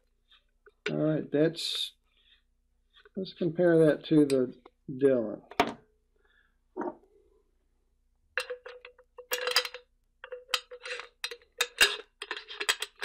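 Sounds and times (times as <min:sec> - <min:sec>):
metal bar clicking and scraping: 0:08.4 - 0:13.0.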